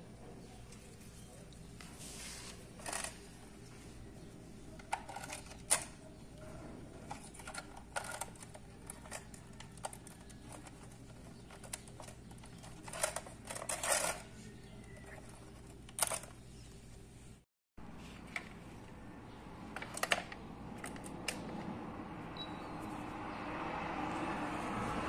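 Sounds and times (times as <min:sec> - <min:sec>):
wires clicking and scraping in socket: 0:00.7 - 0:03.8, 0:04.6 - 0:16.8, 0:19.7 - 0:21.8.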